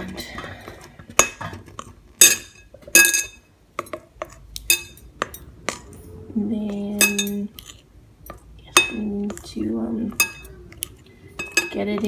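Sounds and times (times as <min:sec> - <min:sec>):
spoon stirring thick mixture: 0:00.0 - 0:12.0
spoon clinking on glass bowl: 0:04.7 - 0:05.9, 0:07.0 - 0:07.7, 0:08.3 - 0:09.4, 0:10.1 - 0:10.5, 0:11.4 - 0:12.0.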